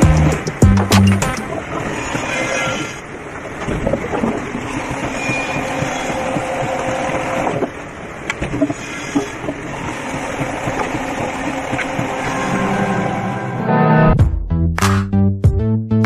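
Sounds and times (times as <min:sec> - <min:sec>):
debarking machine rumbling: 0:00.0 - 0:14.2.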